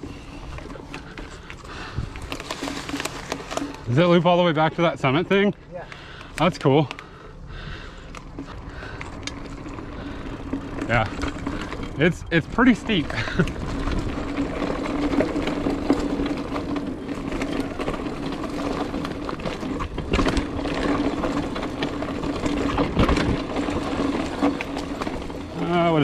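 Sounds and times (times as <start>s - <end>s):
bike jolting with sharp knocks: 0.0s - 5.4s, 7.8s - 26.0s
bike tyres rolling over dirt and leaves: 0.0s - 26.0s
rear hub freewheel buzz: 7.0s - 26.0s.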